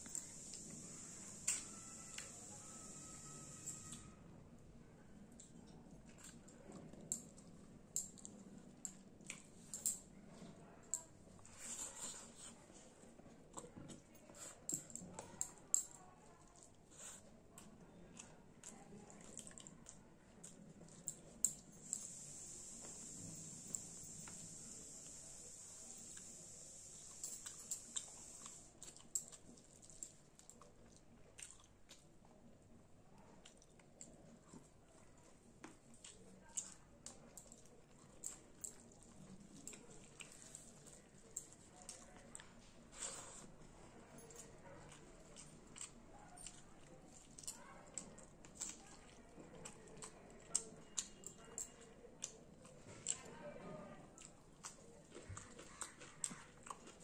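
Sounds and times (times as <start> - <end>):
wet chewing and lip-smacking: 5.3 - 9.8, 16.4 - 23.1, 27.0 - 32.4, 35.7 - 43.6, 44.2 - 53.3, 54.2 - 57.0.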